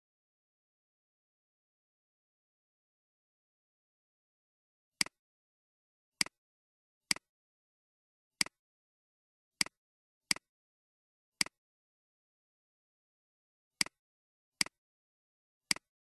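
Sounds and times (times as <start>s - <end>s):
computer mouse clicks: 5.0s - 5.2s, 8.4s - 8.6s, 11.4s - 11.6s, 13.8s - 14.0s, 14.6s - 14.8s, 15.7s - 15.9s.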